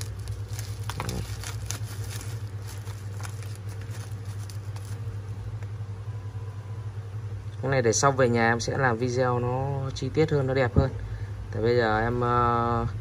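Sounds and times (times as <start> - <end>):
bubble wrap crinkling: 0.0 - 5.6
low hum: 0.0 - 10.2.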